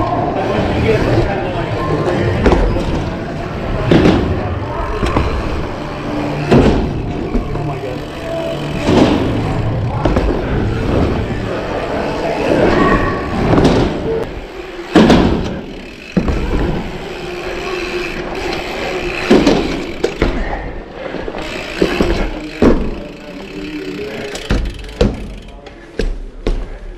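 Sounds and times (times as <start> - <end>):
bike tyres rumbling: 0.0 - 26.9
bike landing thuds: 2.3 - 3.1, 3.8 - 5.6, 6.3 - 7.8, 8.8 - 11.4, 13.2 - 14.1, 14.8 - 17.1, 19.2 - 20.5, 21.8 - 23.2, 24.2 - 26.8.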